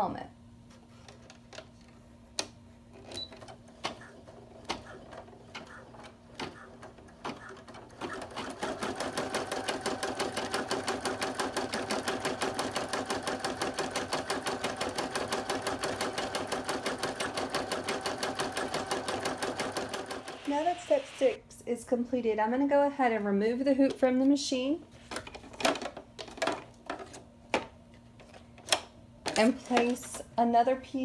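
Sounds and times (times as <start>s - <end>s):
embroidery machine sewing: 4.8s - 20.8s.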